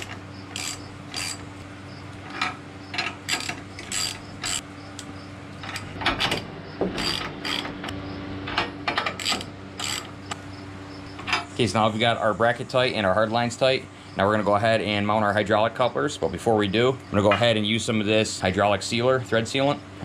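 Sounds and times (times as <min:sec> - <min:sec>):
ratchet wrench clicking: 0:00.0 - 0:01.4, 0:03.0 - 0:05.1, 0:07.0 - 0:07.7, 0:09.1 - 0:10.1.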